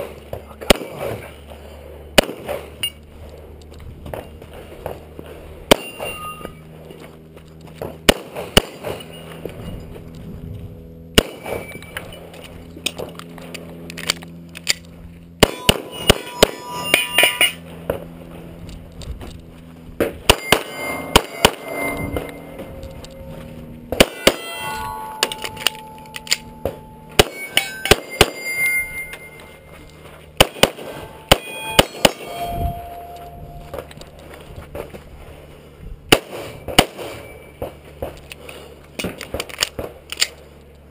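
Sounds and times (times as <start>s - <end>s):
pistol shots: 0.6s - 1.3s, 2.2s - 2.7s, 5.7s - 6.5s, 7.8s - 9.0s, 11.2s - 11.7s, 15.4s - 17.1s, 20.2s - 23.1s, 23.9s - 28.8s, 30.4s - 32.8s, 36.1s - 38.1s
steel targets ringing: 5.6s - 6.8s, 11.2s - 13.0s, 15.4s - 18.2s, 20.2s - 34.3s, 36.1s - 37.8s.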